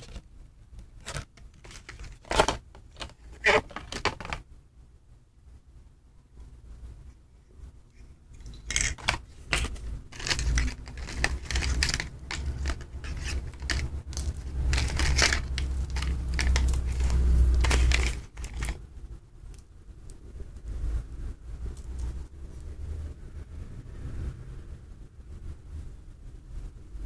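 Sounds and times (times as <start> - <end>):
cables and packaging rustling: 0.0 - 4.5, 8.3 - 20.7
handling noise rumbling: 0.0 - 4.5, 7.6 - 23.6.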